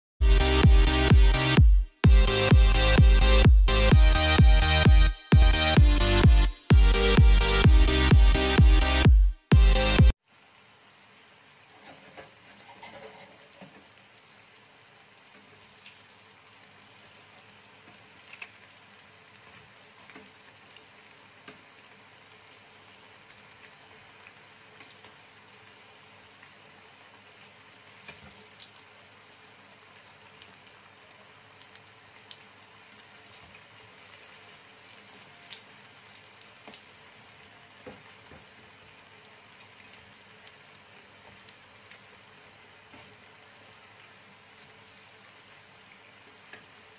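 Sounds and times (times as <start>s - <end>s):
food sizzling in hot oil: 10.2s - 46.9s
oil popping and crackling: 15.5s - 18.8s.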